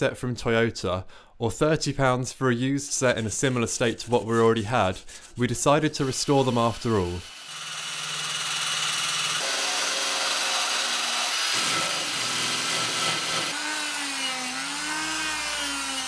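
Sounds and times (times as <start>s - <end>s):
drill grinding metal with disc: 6.0s - 16.0s
rotary tool motor whine: 7.2s - 16.0s.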